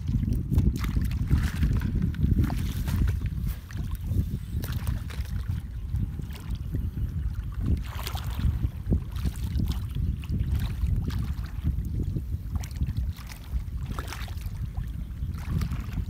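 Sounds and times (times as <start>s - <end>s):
feet wading through muddy water: 0.0s - 16.0s
wind rumble on microphone: 0.0s - 16.0s.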